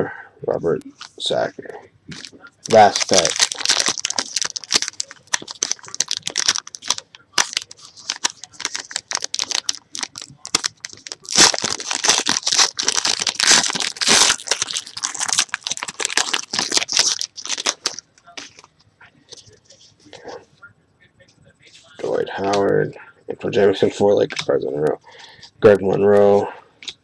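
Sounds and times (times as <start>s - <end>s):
foil wrapper tearing and crinkling: 2.2s - 18.7s.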